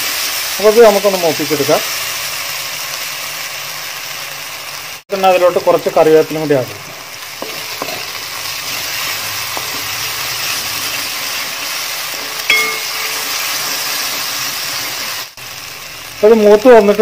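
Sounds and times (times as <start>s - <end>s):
paste sizzling in oil: 0.0s - 17.0s
spatula tapping pan: 7.4s - 8.1s, 9.5s - 9.9s, 12.2s - 13.8s.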